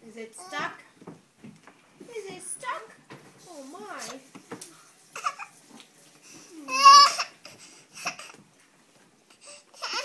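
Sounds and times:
baby babbling: 6.6 - 7.4, 9.8 - 10.0.

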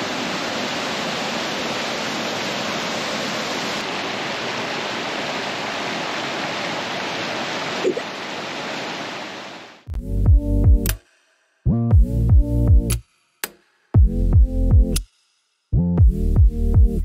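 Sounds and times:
waterfall rushing over rock: 0.0 - 9.8.

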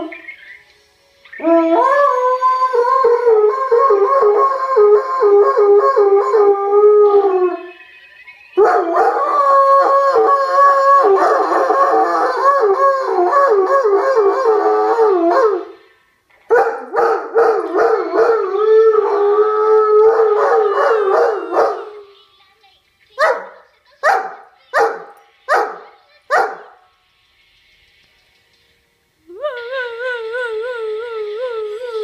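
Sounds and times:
dog howling: 16.7 - 22.1.

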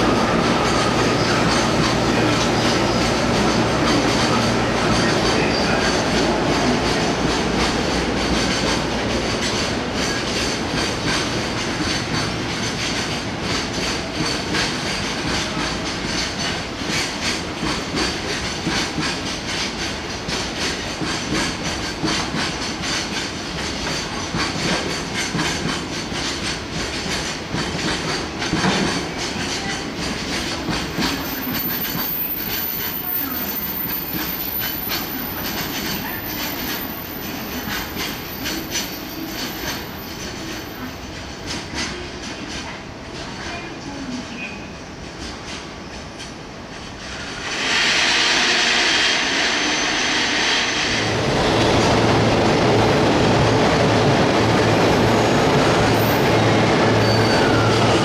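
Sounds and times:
train wheels clattering over joints: 0.6 - 42.7.

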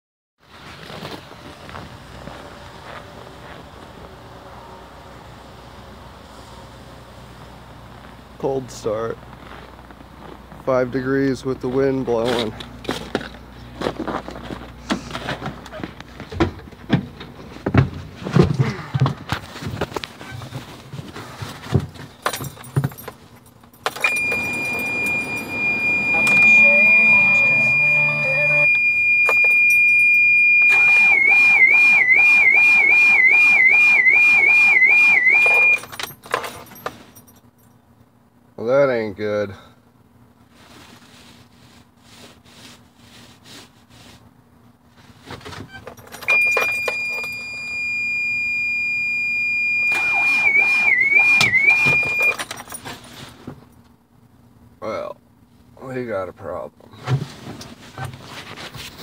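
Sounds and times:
keys jangling and clicking: 22.2 - 26.6, 29.3 - 30.2, 35.5 - 37.7, 45.8 - 47.3, 52.2 - 53.1
low steady hum: 22.4 - 32.2
high-pitched dashboard warning tone: 23.9 - 36.0, 46.2 - 52.5.

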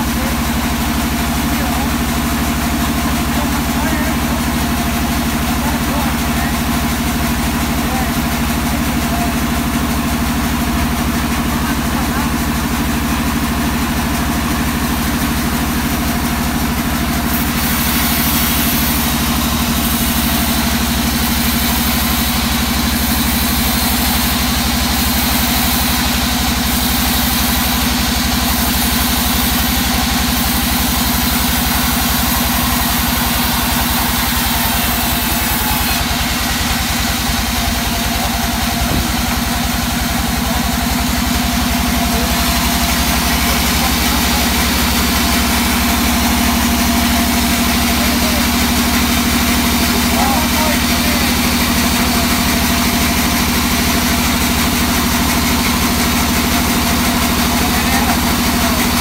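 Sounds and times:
band saw machine drone: 0.0 - 59.0
saw blade hissing through wood: 17.2 - 39.4.

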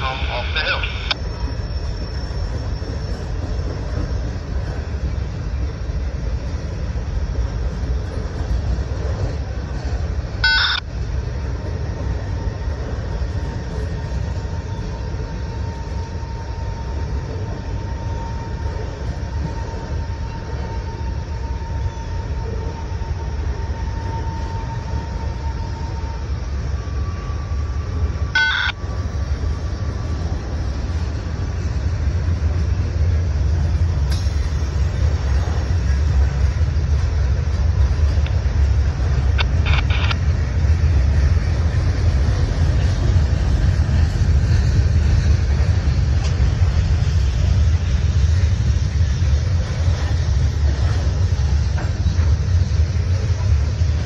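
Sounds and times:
faint steady whine: 0.0 - 23.5, 24.2 - 42.3
freight train rumbling past: 0.0 - 54.0.

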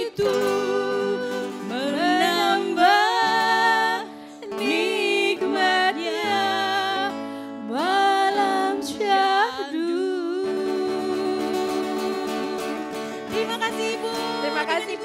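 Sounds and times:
acoustic guitar: 0.0 - 15.0
women singing pop ballad: 0.0 - 15.0.

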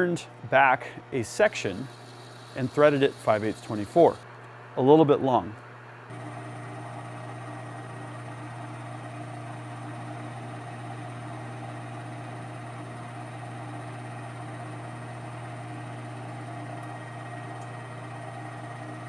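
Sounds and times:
metal lathe motor hum: 1.3 - 4.3, 6.1 - 19.0.

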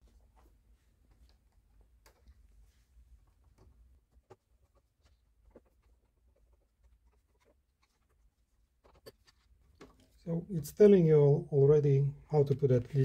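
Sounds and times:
faint clicks and scrapes: 0.0 - 10.3.

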